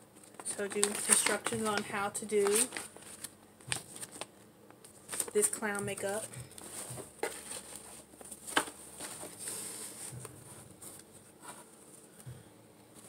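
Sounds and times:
hands rummaging in cardboard box: 0:05.1 - 0:10.2.

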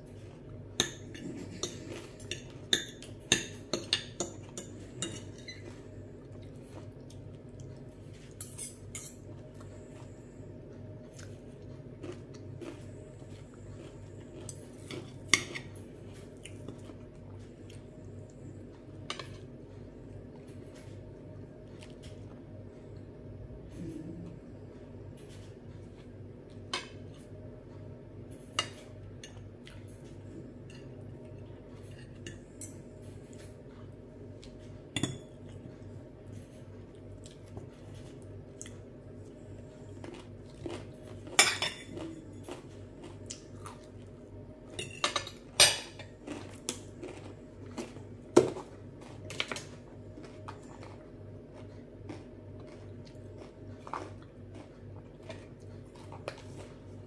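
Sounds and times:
chewing: 0:03.9 - 0:23.1, 0:35.4 - 0:44.4, 0:45.2 - 0:57.0.

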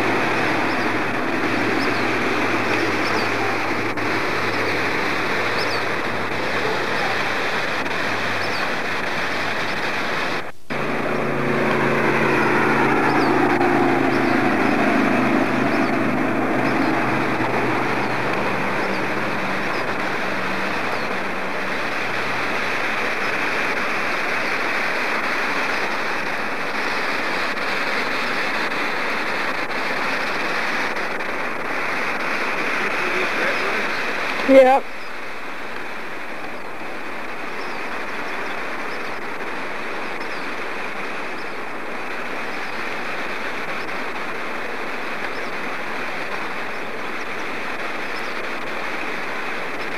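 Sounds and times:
engine passing by: 0:00.0 - 0:34.8
river water rushing: 0:00.0 - 0:49.9.

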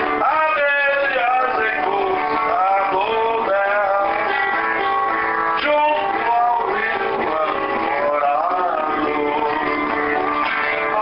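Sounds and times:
acoustic guitar playing: 0:00.0 - 0:11.0.

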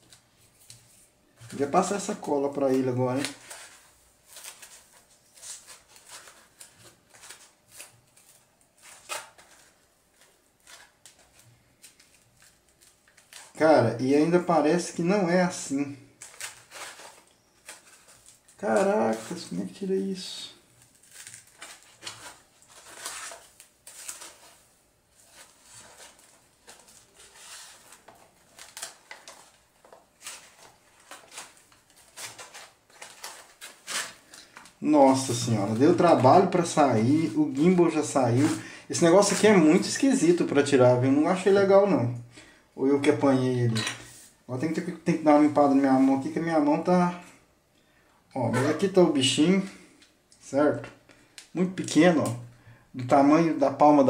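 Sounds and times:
foam and plastic rustling: 0:00.0 - 0:13.8, 0:15.4 - 0:41.8.

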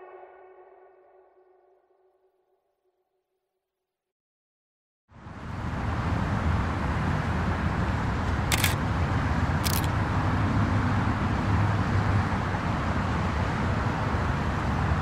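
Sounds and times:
steady rumbling traffic noise: 0:05.1 - 0:15.0.

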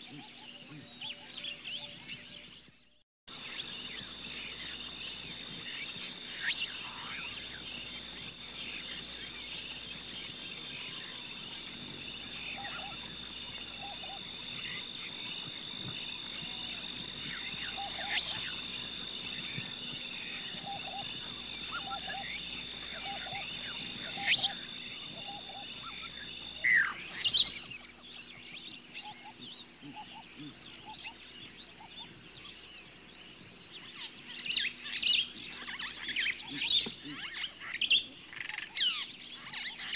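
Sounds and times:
bird chirps: 0:00.0 - 0:32.6
low repeated croaks: 0:03.3 - 0:26.7
high-pitched pulsing chirring: 0:03.3 - 0:26.8.

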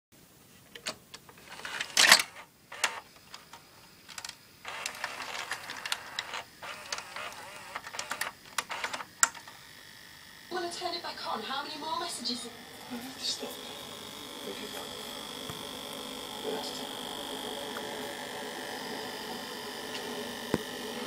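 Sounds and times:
motor whirring: 0:01.4 - 0:21.0
gears and levers clicking: 0:01.6 - 0:09.5.

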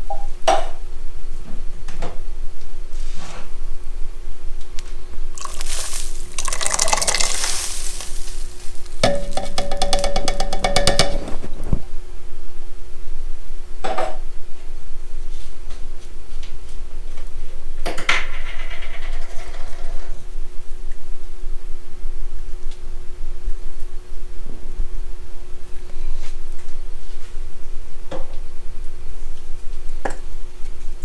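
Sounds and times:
beans pouring and splashing into broth: 0:05.3 - 0:10.1.

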